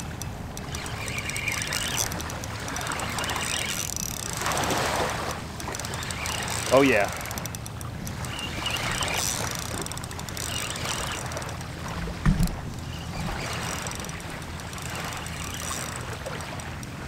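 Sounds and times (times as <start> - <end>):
water at shoreline: 0.0 - 17.0
wind rumble on microphone: 10.7 - 15.2.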